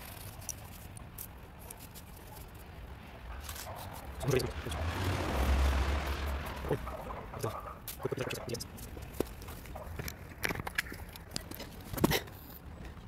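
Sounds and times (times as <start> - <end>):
distant voices: 2.2 - 11.9
vehicle rumbling by: 3.0 - 8.7.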